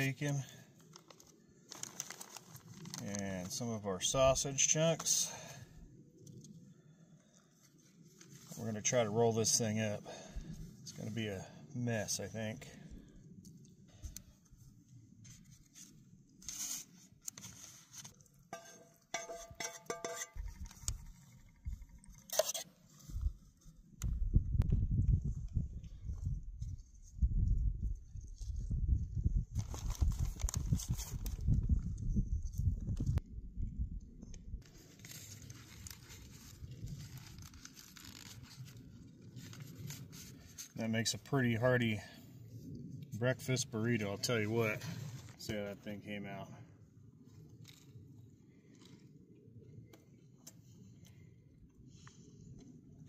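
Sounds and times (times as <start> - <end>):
wind buffeting microphone: 23.1 - 34.6.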